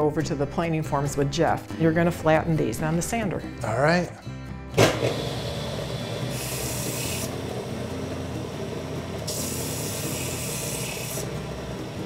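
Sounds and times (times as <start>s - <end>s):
bench sander running: 5.0s - 12.0s.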